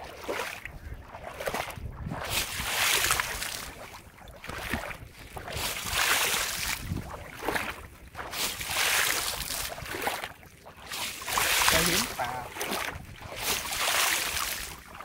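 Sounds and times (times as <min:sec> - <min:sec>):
foot splashing in shallow water: 0:00.0 - 0:15.0.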